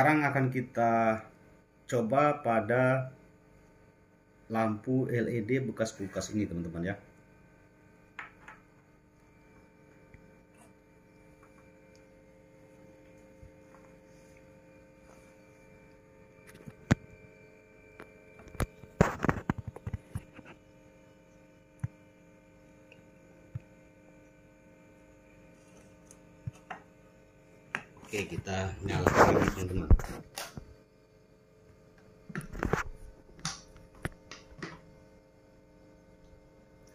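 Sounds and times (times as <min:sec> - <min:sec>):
faint electrical hum: 0:00.0 - 0:36.9.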